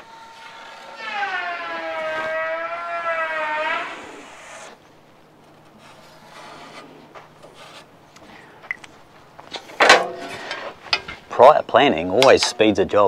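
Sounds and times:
marker scratching on metal: 0:05.8 - 0:07.9.

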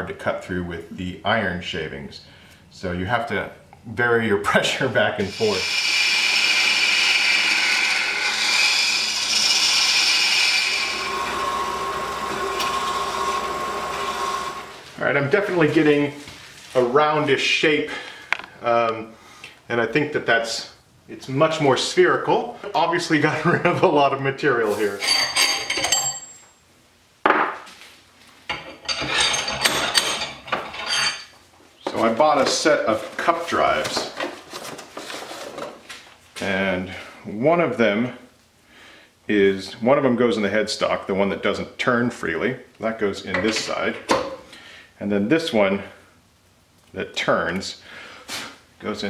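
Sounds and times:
lathe tool hissing cut: 0:05.3 - 0:14.9
lathe motor hum: 0:05.6 - 0:14.8
ringing metal clinks: 0:25.0 - 0:26.6.

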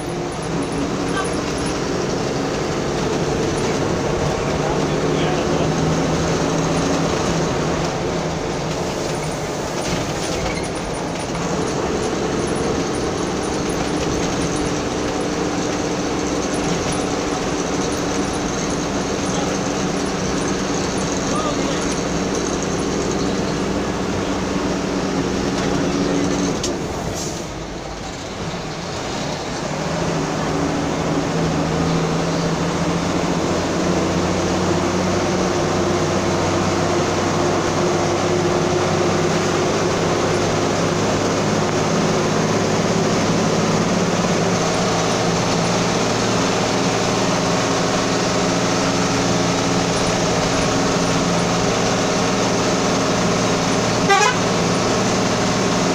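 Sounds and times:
vehicle engine and road noise: 0:00.0 - 0:55.9.

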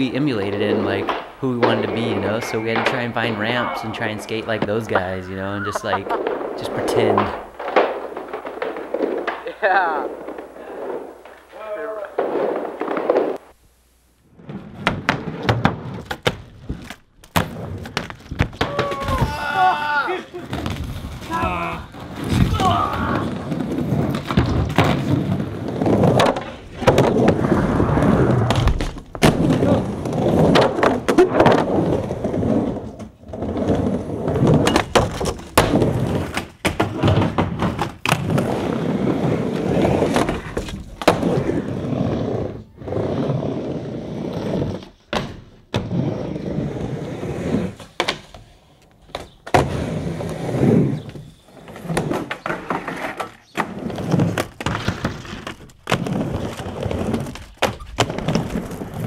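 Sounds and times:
skateboard wheels rolling on wood: 0:00.0 - 0:13.6, 0:14.2 - 0:59.0
skateboard knocks on plywood: 0:14.7 - 0:19.5, 0:22.2 - 0:27.4, 0:34.4 - 0:38.5, 0:45.1 - 0:45.9.

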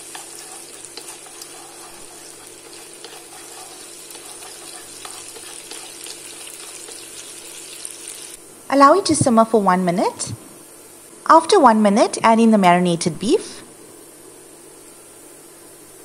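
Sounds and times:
chopsticks tapping wok: 0:00.0 - 0:07.6
garlic sizzling in oil: 0:00.0 - 0:08.5.

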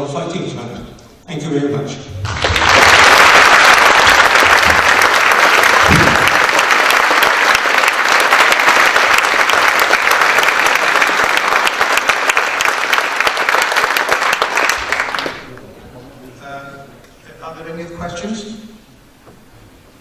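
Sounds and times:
audience applauding: 0:02.2 - 0:15.6.

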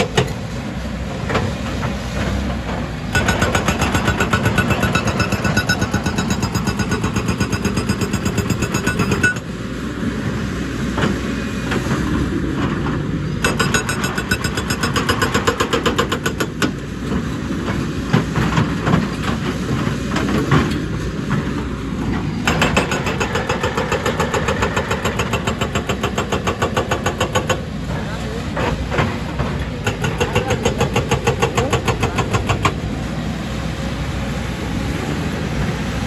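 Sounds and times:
excavator engine running: 0:00.0 - 0:36.0
hydraulic breaker hammering rock: 0:03.1 - 0:09.5, 0:13.4 - 0:16.8, 0:22.4 - 0:27.7, 0:28.5 - 0:32.8.

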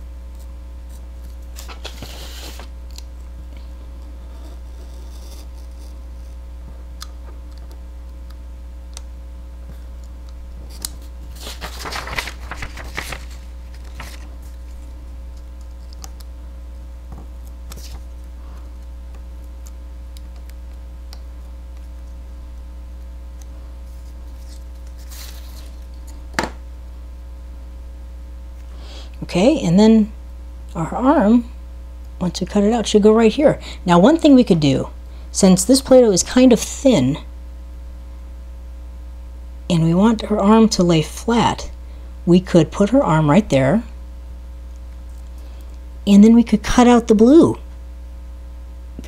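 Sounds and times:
steady low hum: 0:00.0 - 0:49.0
knife scraping paper: 0:00.8 - 0:02.7, 0:04.3 - 0:06.4
paper rustle: 0:01.2 - 0:02.7, 0:10.7 - 0:14.9, 0:17.7 - 0:18.2, 0:23.9 - 0:26.2.

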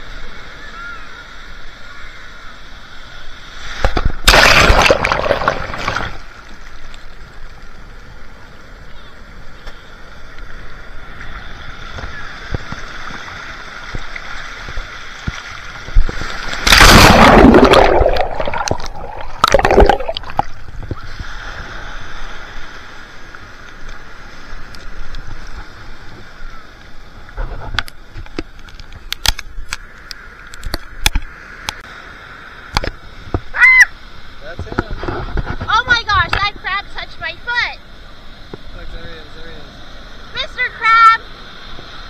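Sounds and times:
surf washing: 0:00.0 - 0:29.1, 0:29.8 - 0:42.0
water splash: 0:03.6 - 0:06.8, 0:12.8 - 0:21.3.

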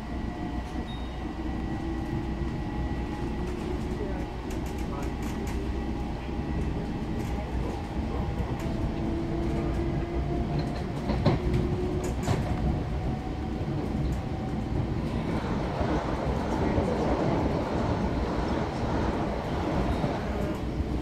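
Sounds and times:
train rumble from inside: 0:00.0 - 0:21.0.

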